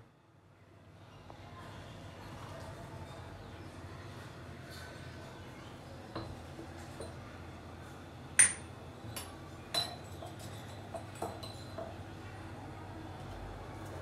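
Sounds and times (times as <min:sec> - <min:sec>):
metallic clinks on a steel pot: 0:08.4 - 0:11.9.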